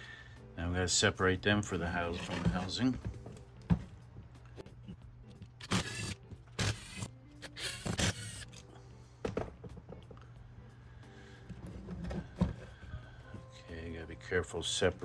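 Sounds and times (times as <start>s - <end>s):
cordless drill bursts: 5.6s - 8.5s.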